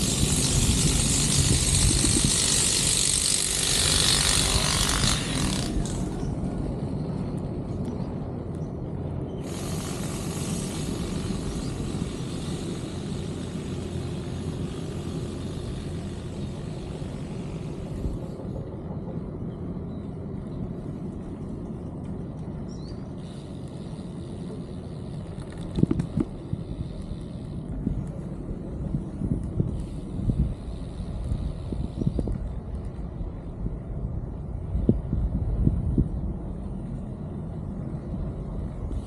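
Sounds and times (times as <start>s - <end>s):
low outdoor rumble: 0.0s - 39.0s
high hiss: 9.4s - 18.2s.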